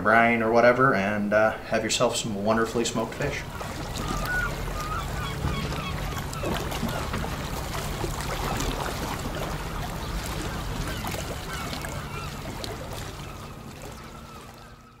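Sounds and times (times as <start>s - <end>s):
water washing: 1.9s - 15.0s
short bird calls: 3.9s - 7.1s, 10.4s - 15.0s.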